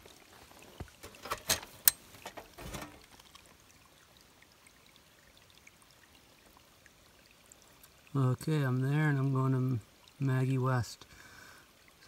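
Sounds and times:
metal lid clicking and knocking: 1.0s - 2.9s.

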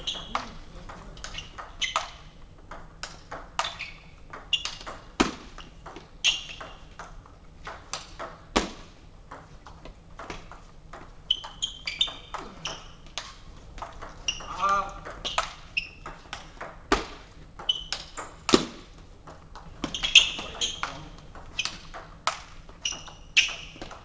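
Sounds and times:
ping pong ball hits: 0.0s - 24.0s.

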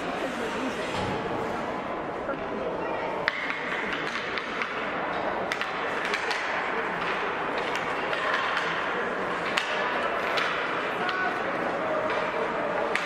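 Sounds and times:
hockey sticks clacking on puck: 3.2s - 13.0s.

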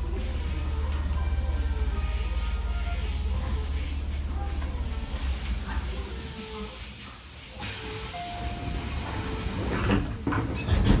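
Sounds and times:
hiss of air: 0.0s - 10.2s
train doors thumping shut: 8.4s - 11.0s.

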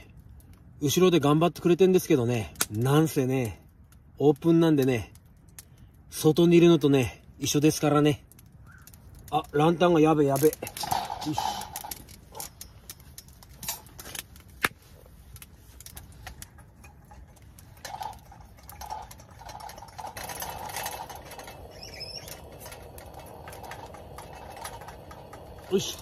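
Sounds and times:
clicks and knocks of handling: 10.3s - 26.0s
lantern hissing: 14.7s - 26.0s.

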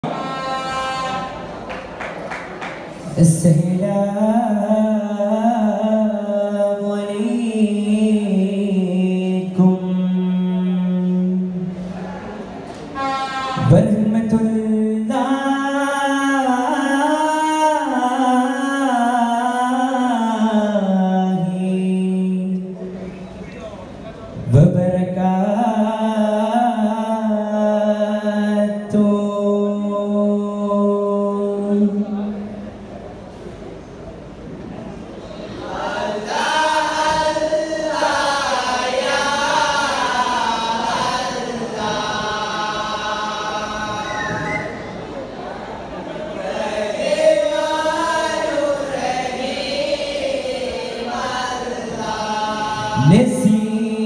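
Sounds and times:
men chanting devotional melody: 3.0s - 12.4s, 13.1s - 23.4s, 24.4s - 32.6s, 35.5s - 45.0s, 46.3s - 54.0s
man singing unaccompanied: 3.1s - 11.7s, 13.6s - 22.8s, 24.4s - 32.3s, 51.1s - 54.0s.

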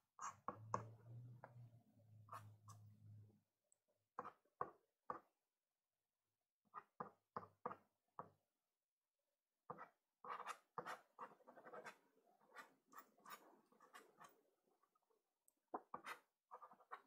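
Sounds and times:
pastel stick scratching on paper: 9.7s - 14.3s, 15.8s - 17.0s.

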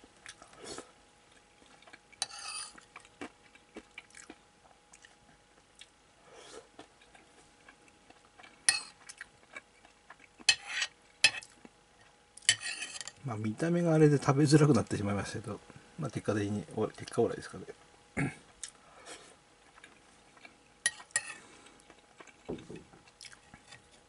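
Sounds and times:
person chewing food: 0.2s - 12.6s, 18.4s - 24.0s
metal spoon scraping ceramic plate: 2.2s - 2.8s, 12.5s - 13.2s.

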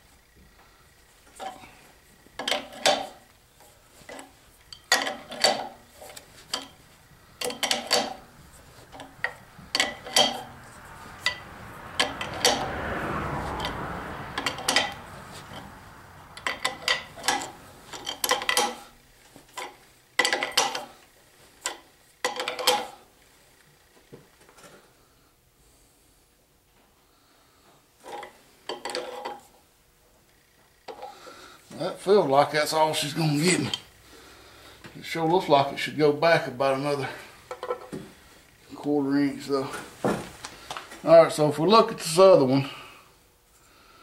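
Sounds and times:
wrenches clinking on metal: 2.4s - 3.3s, 4.0s - 12.7s, 13.6s - 21.0s, 21.6s - 23.0s, 28.0s - 29.5s.

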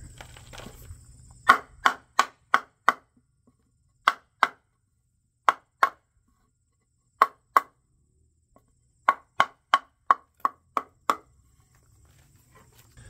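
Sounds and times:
hammer striking wood: 1.4s - 3.3s, 4.0s - 4.8s, 5.4s - 6.1s, 7.2s - 7.8s, 8.6s - 11.3s.

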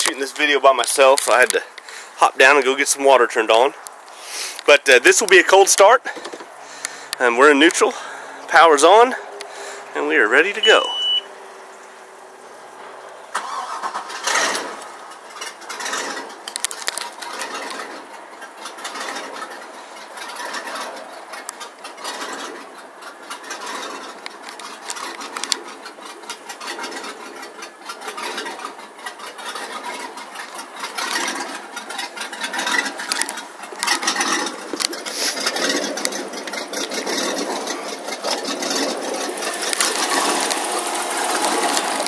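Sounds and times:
boat engine idling: 17.1s - 42.0s.

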